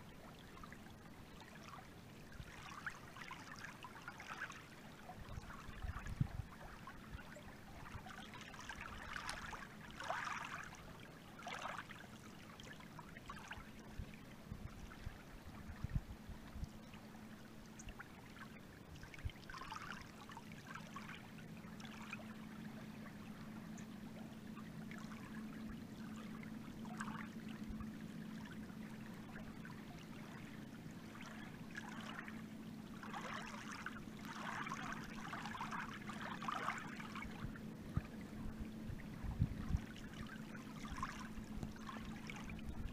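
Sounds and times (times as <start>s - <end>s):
water lapping against boat hull: 0.0s - 42.9s
low hum: 13.6s - 19.4s, 20.0s - 42.9s.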